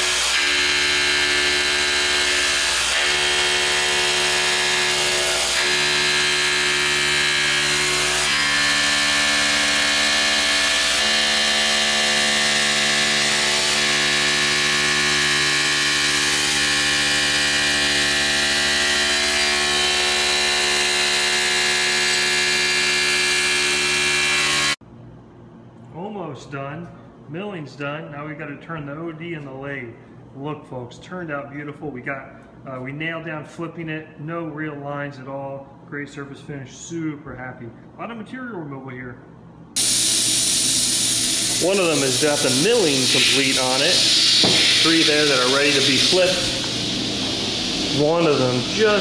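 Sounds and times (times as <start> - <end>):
end mill cutting aluminum: 0.0 - 24.8, 39.8 - 49.0.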